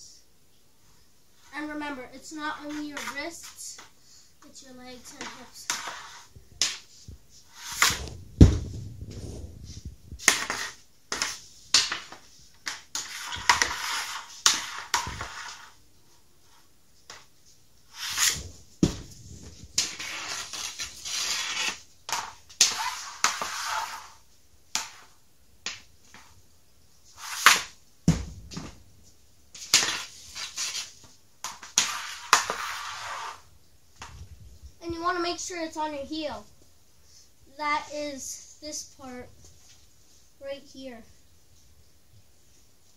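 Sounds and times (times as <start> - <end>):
stick blade scraping plastic pad: 5.0 - 6.8, 7.4 - 8.2, 10.2 - 15.8, 17.9 - 18.6, 19.8 - 24.2, 27.1 - 27.8, 29.6 - 33.4
pucks clacking: 5.0 - 6.9, 10.2 - 15.6, 19.8 - 24.1, 29.6 - 33.4
heavy thuds: 7.9 - 10.2, 18.4 - 19.7, 28.0 - 28.9.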